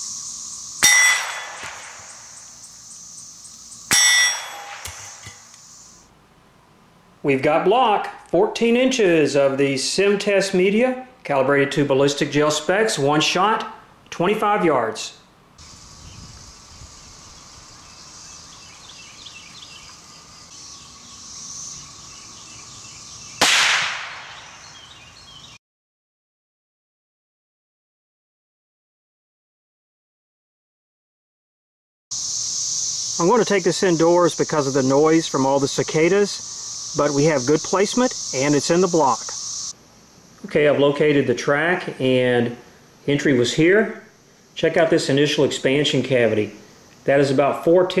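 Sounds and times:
bird chirps: 0.0 - 6.0, 15.6 - 23.4, 24.2 - 25.6
cicadas buzzing: 0.0 - 6.2, 15.3 - 25.6, 32.1 - 48.0
steel plate ringing clang: 0.8 - 2.3, 3.9 - 5.5
rifle shot: 0.8 - 2.4, 3.9 - 5.4, 23.4 - 24.6.

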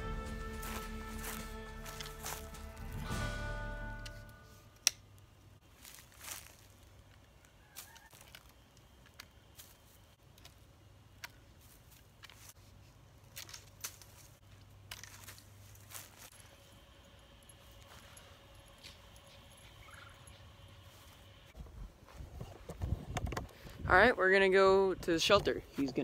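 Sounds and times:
foliage rustling: 0.0 - 3.1, 5.6 - 23.0.

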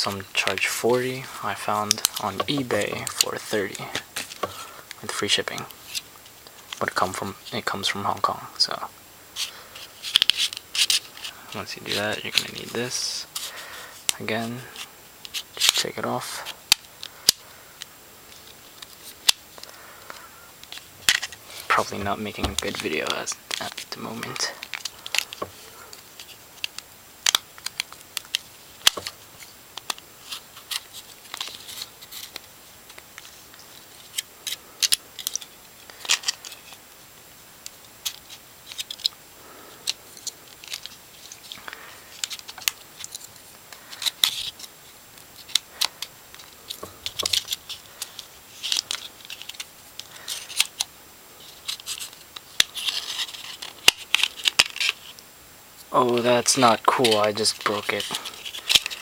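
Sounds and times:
plastic scraping: 18.4 - 26.7.

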